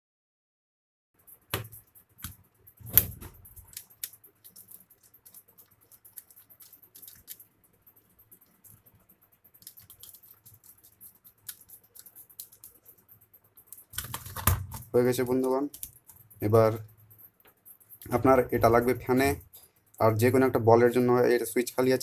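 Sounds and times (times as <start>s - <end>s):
light handling ticks: 1.2s - 22.0s
sharp plastic clicks and knocks: 13.6s - 19.5s.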